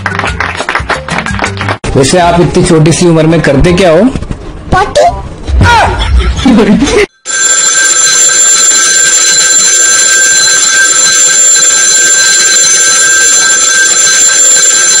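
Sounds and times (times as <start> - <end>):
alarm bell ringing: 7.2 - 15.0.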